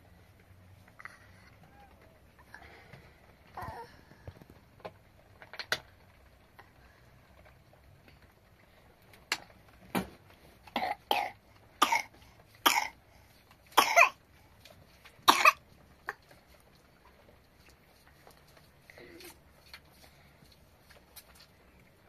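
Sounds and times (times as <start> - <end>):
person coughing: 13.8 - 14.2.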